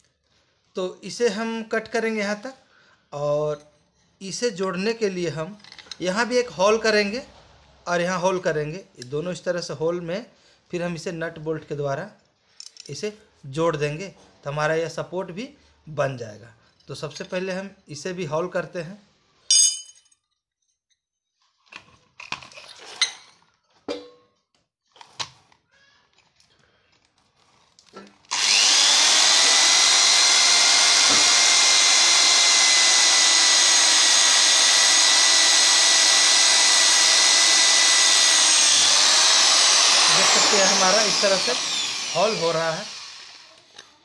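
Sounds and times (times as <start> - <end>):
electric drill whining through metal: 28.3 - 43.8.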